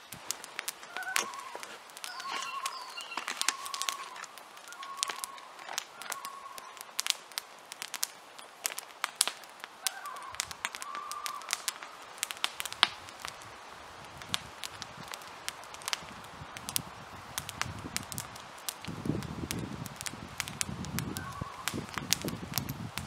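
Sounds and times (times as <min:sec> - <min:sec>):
campfire crackling and popping: 0:00.0 - 0:23.0
short whistling tones: 0:01.0 - 0:06.8.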